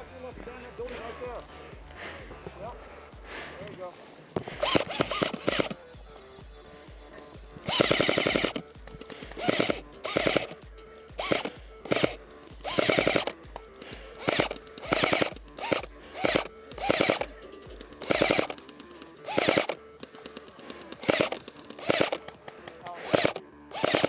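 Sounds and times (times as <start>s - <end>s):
airsoft gun full-auto bursts: 4.6s - 5.9s, 7.6s - 24.0s
gearbox motor whine: 4.6s - 20.0s, 23.0s - 24.0s.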